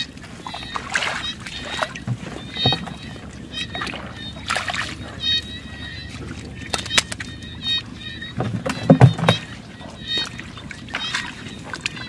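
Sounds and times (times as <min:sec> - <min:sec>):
hands splashing in muddy water: 0:00.0 - 0:07.8.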